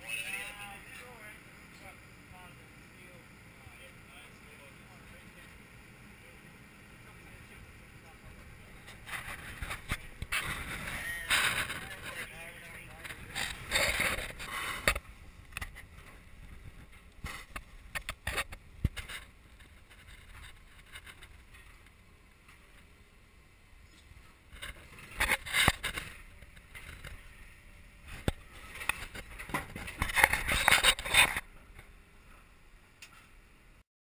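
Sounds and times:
scraping and rustling: 8.8s - 21.9s, 23.9s - 27.3s, 28.0s - 31.5s.

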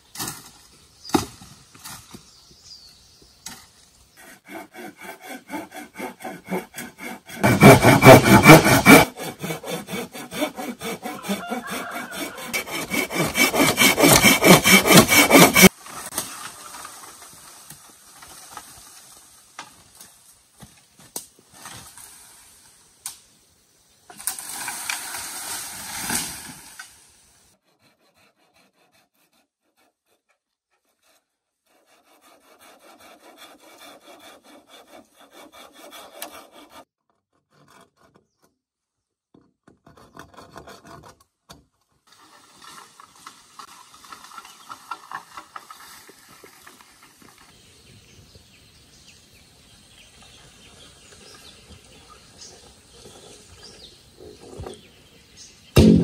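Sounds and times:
hand tool rasping on wood: 4.2s - 15.7s, 27.6s - 38.3s, 39.7s - 41.2s.

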